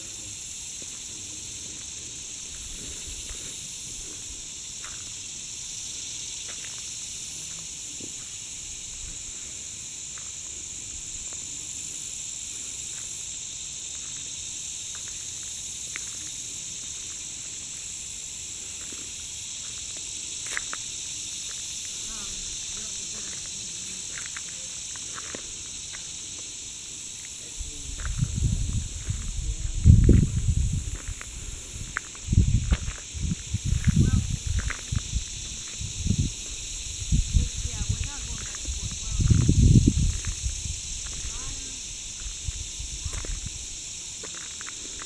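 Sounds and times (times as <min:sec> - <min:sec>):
insects chorus: 0:00.0 - 0:45.0.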